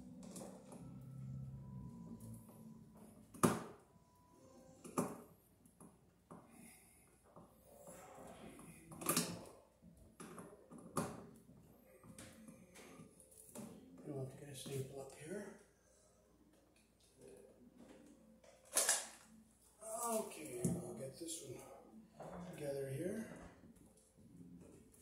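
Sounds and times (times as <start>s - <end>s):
quiet scraping and rustling: 19.2s - 25.0s.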